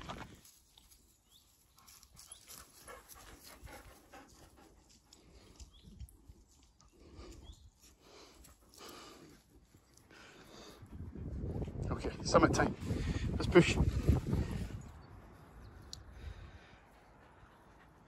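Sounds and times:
dogs panting: 1.8 - 11.0, 13.9 - 18.0.

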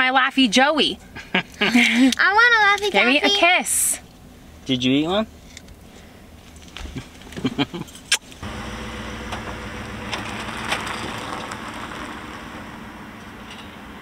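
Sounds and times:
truck with trailer driving past: 8.4 - 14.0.

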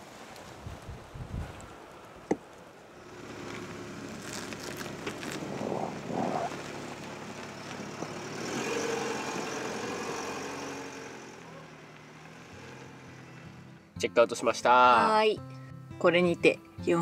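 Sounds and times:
van engine running: 3.0 - 13.9.

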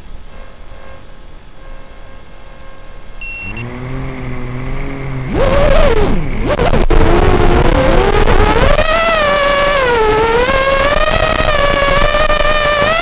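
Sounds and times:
short beep: 1.6 - 3.7
drone motors whining: 2.6 - 13.0.

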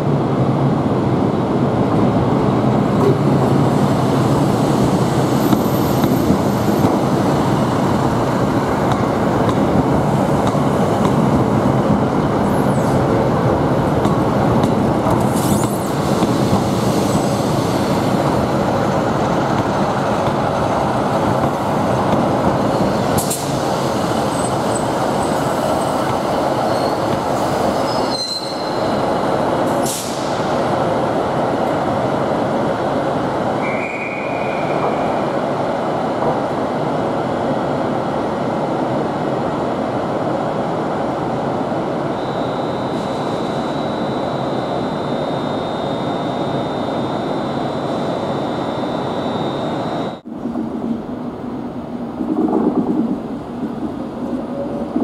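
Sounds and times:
train diesel engines rumbling: 0.0 - 55.0
train wheels on rail: 0.0 - 55.0
high-pitched wheel squeals: 26.6 - 29.0.

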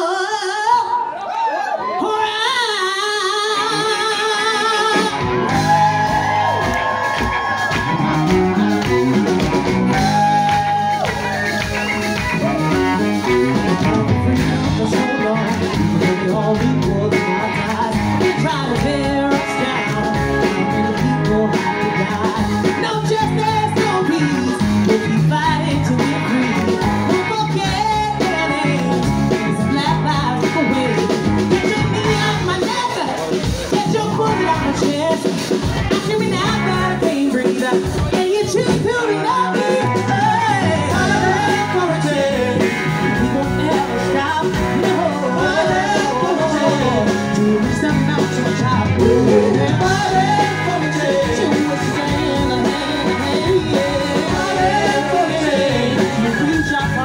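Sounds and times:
electric guitar: 1.6 - 57.0
bass guitar: 1.8 - 57.0
drum kit: 4.6 - 57.0
gospel group singing: 39.4 - 57.0.

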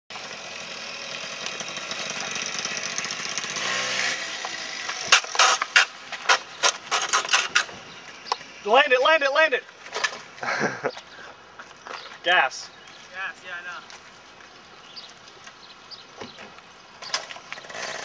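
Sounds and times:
small motorcycle engine revving: 0.1 - 7.7, 17.1 - 18.0
metal scraping on asphalt: 0.2 - 10.4, 16.3 - 18.0.

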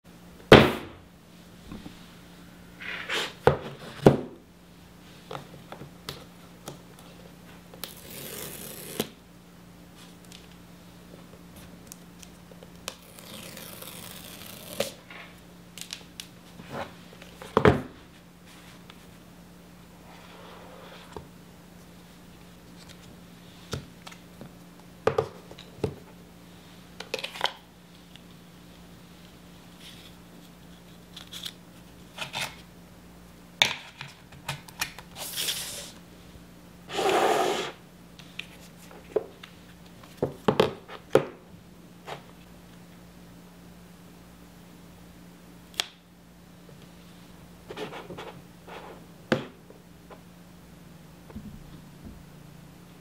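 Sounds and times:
cardboard scraping tear: 13.0 - 15.0.

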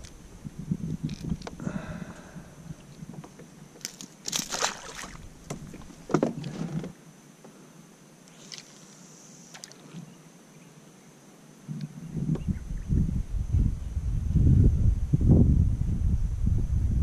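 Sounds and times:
handling rustling and knocks: 3.1 - 7.0.

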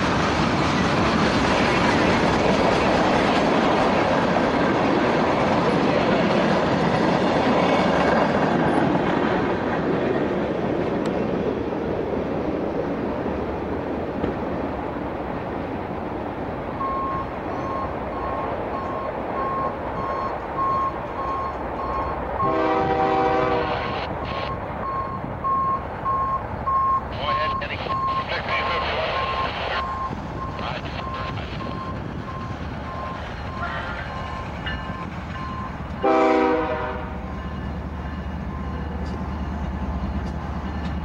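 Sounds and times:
oncoming train rumble: 0.0 - 41.0
diesel locomotive horn: 22.4 - 24.1, 36.0 - 37.5.

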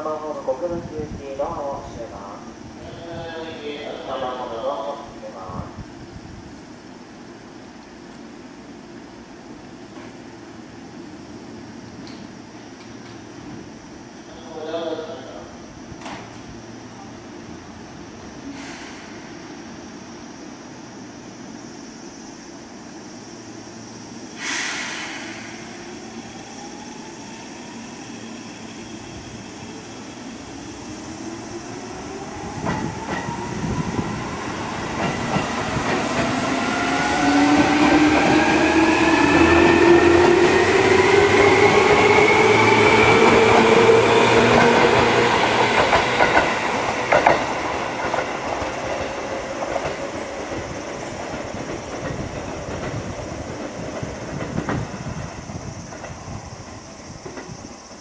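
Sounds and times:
air hiss: 18.3 - 31.8.

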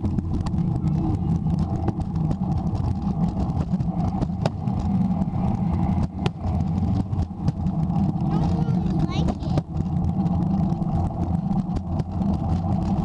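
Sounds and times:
scooter rolling over concrete: 0.0 - 13.0.

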